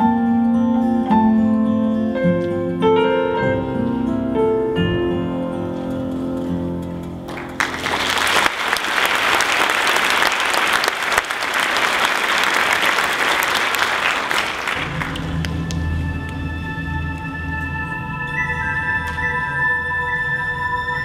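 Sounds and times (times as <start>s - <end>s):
audience applauding: 7.3s - 16.4s.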